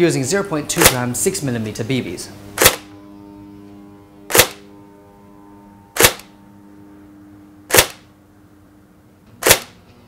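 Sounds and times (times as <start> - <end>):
airsoft rifle single shots: 2.6 - 2.9, 7.7 - 8.0, 9.4 - 9.8.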